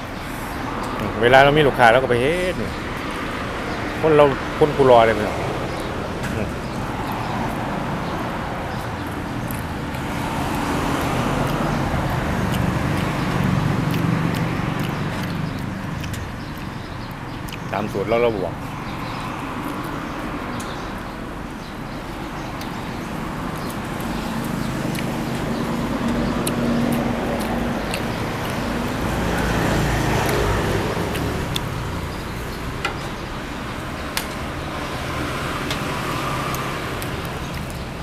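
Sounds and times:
traffic hum: 0.0s - 38.0s
vehicle engine passing: 0.0s - 38.0s.

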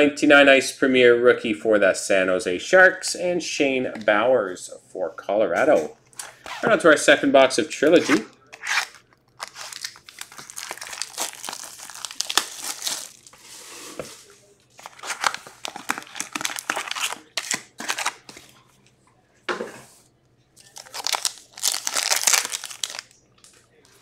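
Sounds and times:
foil wrappers crinkling and tearing: 8.6s - 13.4s, 14.8s - 18.3s, 20.6s - 23.2s.

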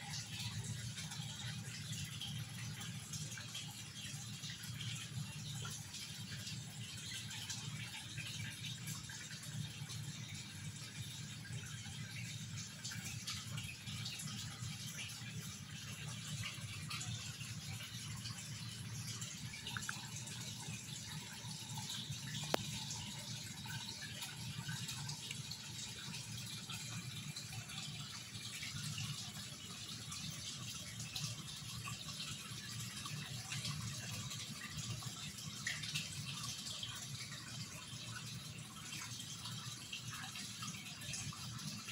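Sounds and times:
water trickling in pond: 0.0s - 41.9s
small pops and ticks: 19.6s - 20.0s, 22.3s - 22.8s.

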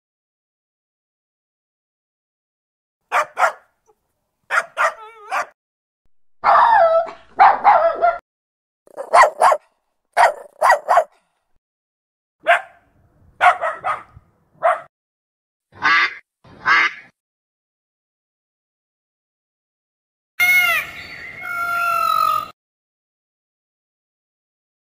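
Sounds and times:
dog barking: 3.1s - 3.8s, 4.5s - 5.6s, 6.4s - 8.2s, 8.9s - 11.2s, 12.4s - 12.8s, 13.4s - 14.9s
dog whining: 4.8s - 5.6s.

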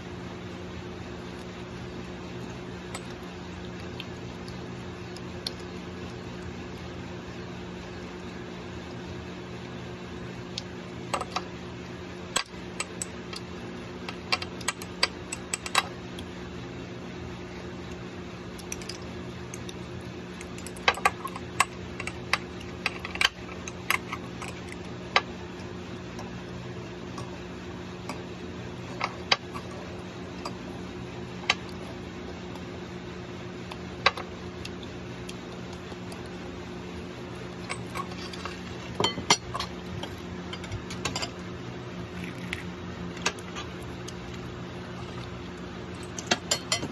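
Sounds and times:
steady low hum: 0.0s - 46.9s.

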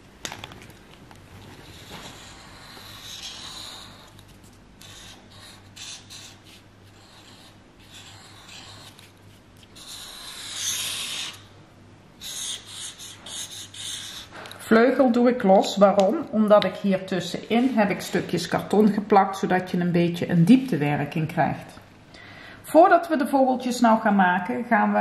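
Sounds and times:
felt-tip marker scratching cardboard: 1.7s - 4.2s, 4.8s - 11.4s, 12.2s - 14.3s.

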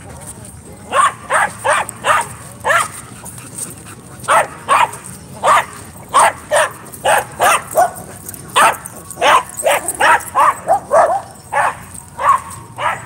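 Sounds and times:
dog barking: 0.9s - 3.0s, 4.3s - 8.0s, 8.6s - 13.0s.

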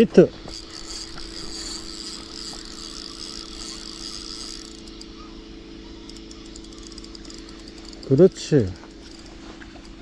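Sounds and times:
fishing reel gear whir: 0.0s - 10.0s
light reel clicking: 0.0s - 10.0s
steady low hum: 0.0s - 10.0s.

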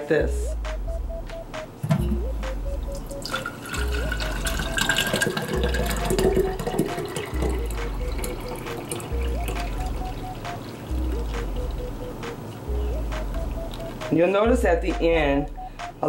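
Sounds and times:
background music with low beat: 0.0s - 16.0s
thick juice pouring into glass jar: 3.2s - 9.8s.

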